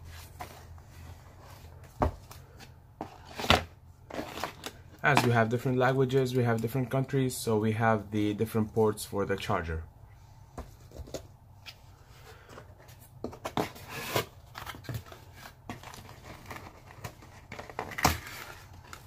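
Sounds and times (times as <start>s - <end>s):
cardboard packaging rustling: 0.0s - 5.4s, 12.3s - 19.0s.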